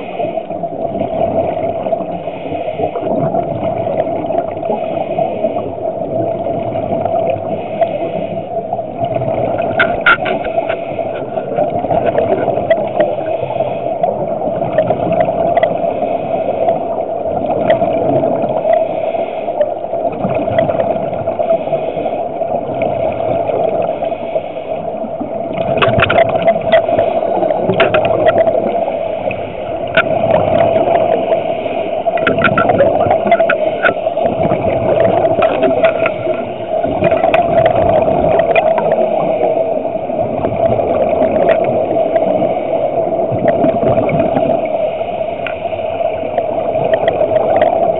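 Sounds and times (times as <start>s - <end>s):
steady hum: 0.0s - 47.9s
underwater water noise: 0.0s - 47.9s
crackling clicks: 9.0s - 13.3s, 14.6s - 15.8s, 25.5s - 31.3s, 32.0s - 39.0s, 40.6s - 42.3s, 45.4s - 45.7s, 46.3s - 47.9s.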